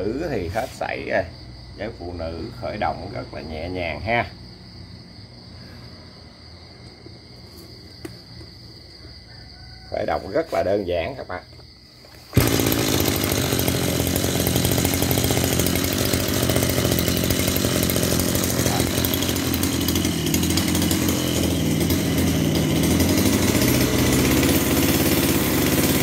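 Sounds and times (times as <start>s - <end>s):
brush cutter engine running: 12.2s - 26.0s.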